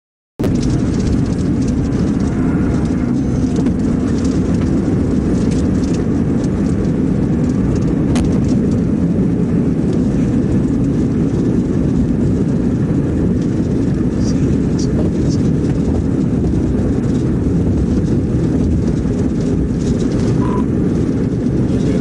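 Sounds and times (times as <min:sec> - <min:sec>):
road and wind noise in car: 0:00.4 - 0:22.0.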